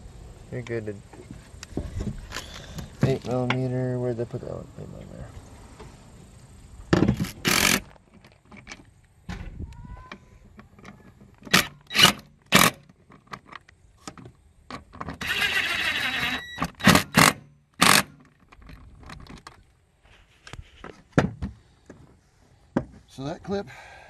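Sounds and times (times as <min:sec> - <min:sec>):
cordless drill bursts: 0:07.2 - 0:07.9, 0:11.5 - 0:12.8, 0:15.2 - 0:18.1.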